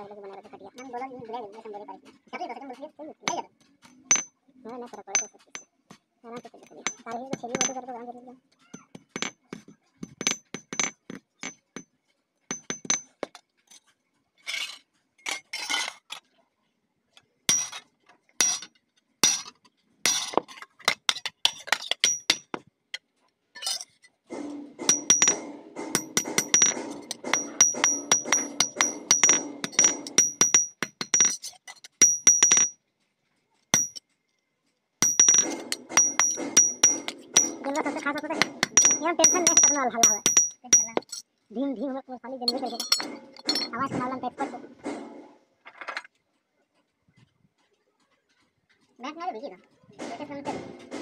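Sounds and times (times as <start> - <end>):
hammer striking steel: 17.5 - 17.8, 18.4 - 19.5, 21.1 - 22.6, 24.3 - 31.4, 32.0 - 32.8, 33.8 - 34.0, 35.0 - 41.2, 42.5 - 43.8.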